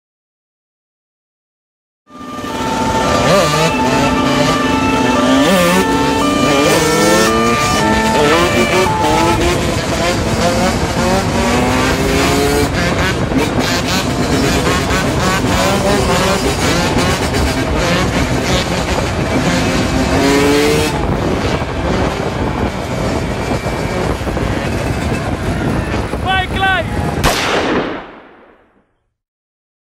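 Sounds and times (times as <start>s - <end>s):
two-stroke engine revving: 2.1s - 28.1s
heavy wind noise: 2.6s - 28.4s.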